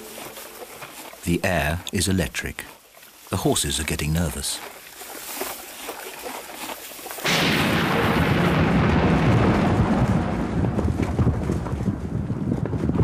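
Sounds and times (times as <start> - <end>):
horses galloping hoofbeats: 0.0 - 7.3, 9.8 - 13.0
thunderclap: 7.2 - 13.0
rolling rumble of thunder: 7.3 - 13.0.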